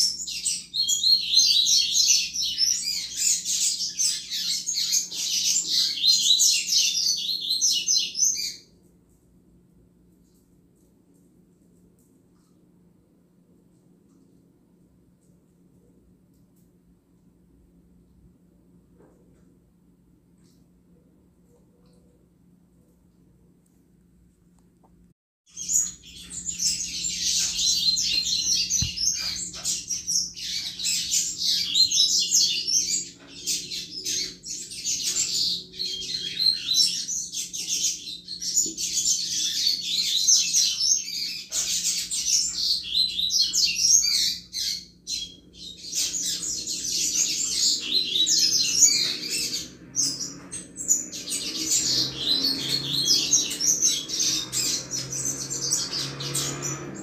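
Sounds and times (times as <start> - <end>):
bird singing rapid chirps: 0.0 - 8.7, 25.5 - 57.0.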